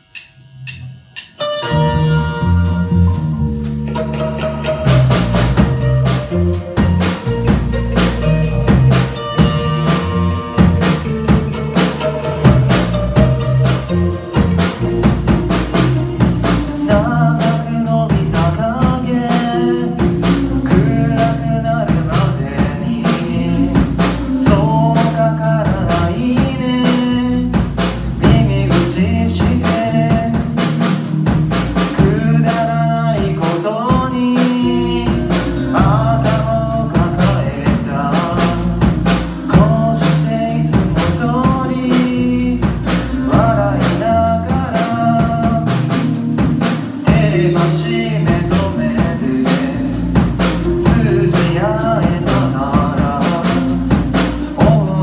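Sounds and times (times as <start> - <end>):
live rock band playing: 0.0 - 55.0
male lead vocal: 16.5 - 30.8, 31.8 - 46.2, 47.0 - 55.0.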